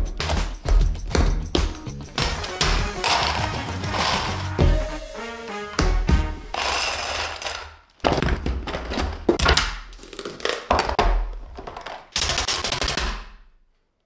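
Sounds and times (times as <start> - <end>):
cardboard boxes being cut open: 2.2 - 4.6
plastic bricks clattering on wood: 2.2 - 4.6, 6.5 - 13.0.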